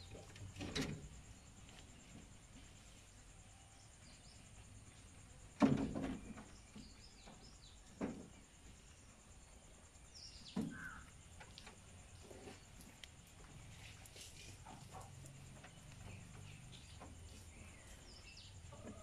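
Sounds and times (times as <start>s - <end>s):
rabbits knocking on wire mesh: 5.6s - 6.5s.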